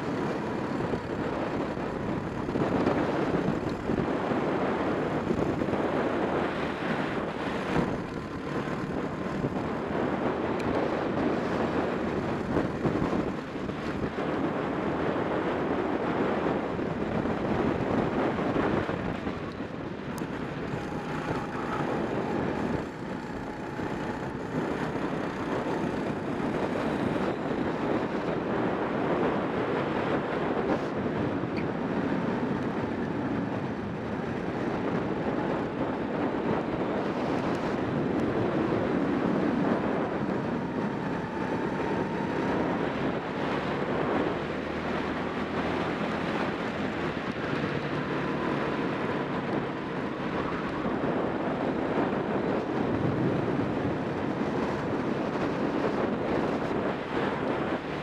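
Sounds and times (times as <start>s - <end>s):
wind noise on microphone: 0.0s - 58.0s.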